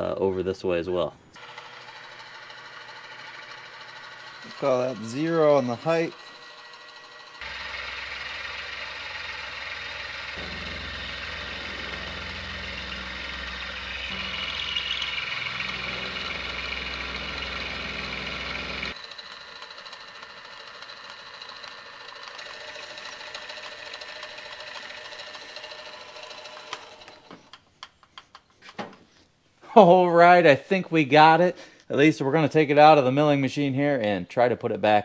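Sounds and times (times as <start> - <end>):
milling machine motor hum: 1.4 - 27.3
end mill cutting steel: 1.4 - 27.4.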